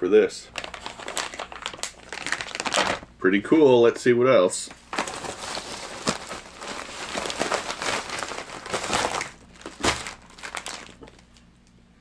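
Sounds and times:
plastic bag crinkling and rustling: 0.5 - 3.1, 4.6 - 11.5.

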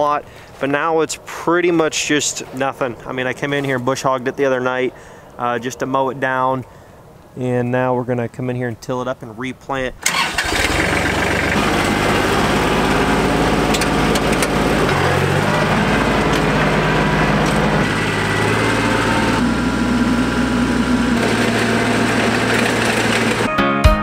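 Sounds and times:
rototiller churning soil: 10.0 - 23.5
tractor engine running under load: 10.0 - 23.5.

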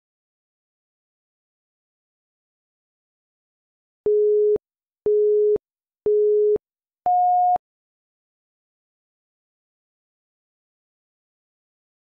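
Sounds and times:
electronic timer beeps: 4.1 - 7.6.

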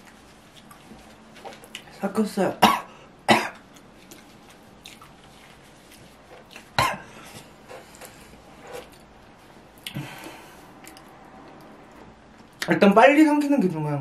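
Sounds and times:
man coughing: 2.6 - 3.6, 6.8 - 7.1.

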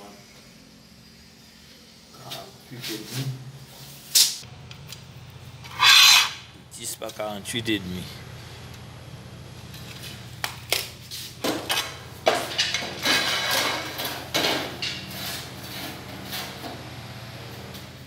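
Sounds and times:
steady low hum: 0.0 - 18.0
tiles and tile cutter clacking: 10.8 - 16.5.

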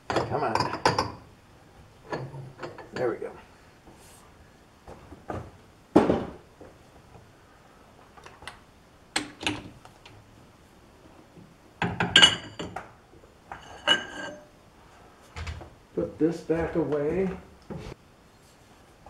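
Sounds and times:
metal tools clanking: 13.5 - 14.5.

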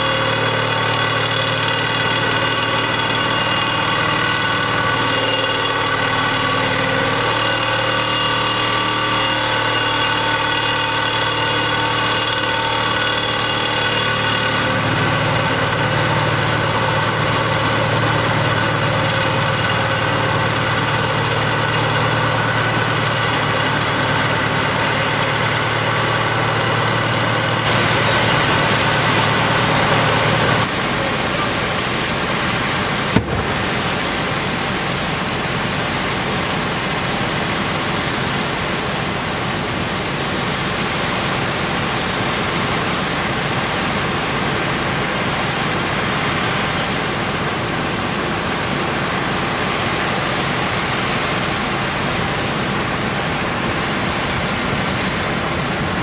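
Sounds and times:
high whine: 0.0 - 48.3
rig engine: 0.0 - 56.0
vibratory hammer driving pile: 33.0 - 34.5.

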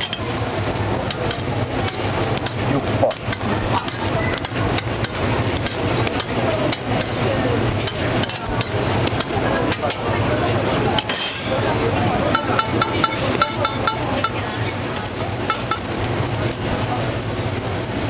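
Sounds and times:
griddle sizzling: 0.0 - 18.0
metal tongs clicking and scraping: 1.0 - 7.2, 7.8 - 10.1, 11.0 - 11.6.

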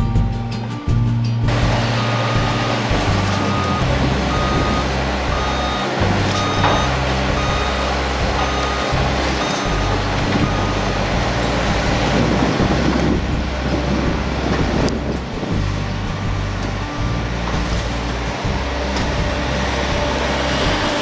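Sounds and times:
low engine rumble: 0.0 - 21.0
reversing alarm beeping: 1.6 - 11.0.

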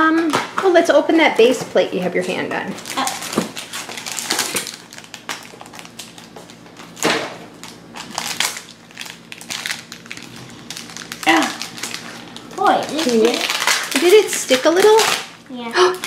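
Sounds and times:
plastic wrapping tearing and crinkling: 2.7 - 15.4.

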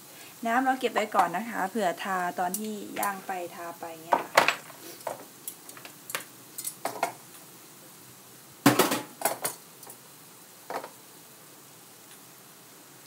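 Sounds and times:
utensils and dishes clinking: 4.4 - 7.2.

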